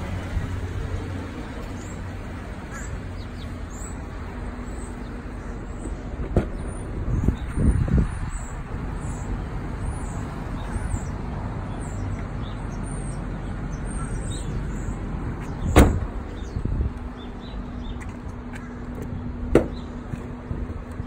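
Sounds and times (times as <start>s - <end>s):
car door slamming: 15.6s - 16.2s, 19.5s - 19.8s
light thump: 15.7s - 16.1s.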